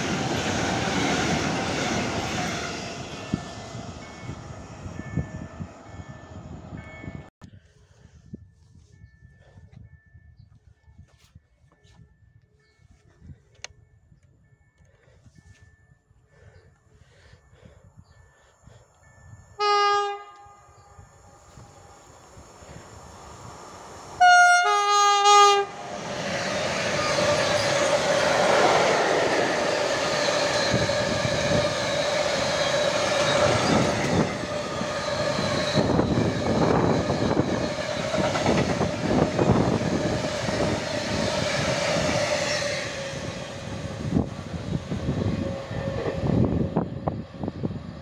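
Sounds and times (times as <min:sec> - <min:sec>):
two-note locomotive horn: 0:19.6 - 0:21.6, 0:24.2 - 0:25.9.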